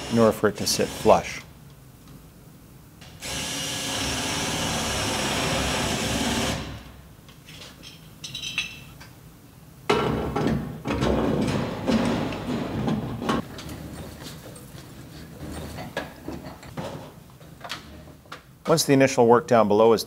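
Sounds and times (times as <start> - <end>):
cordless drill running: 3.2 - 6.6.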